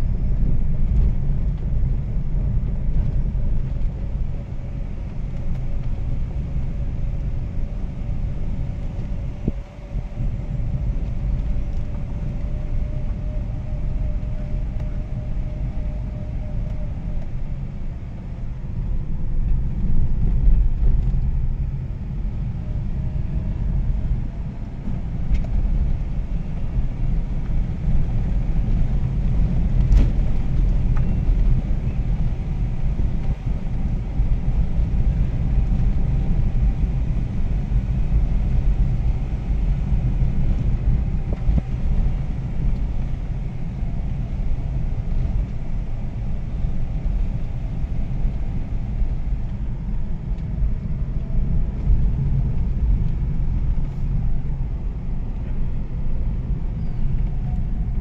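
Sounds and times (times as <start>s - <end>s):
vehicle engine rumble: 0.0s - 58.0s.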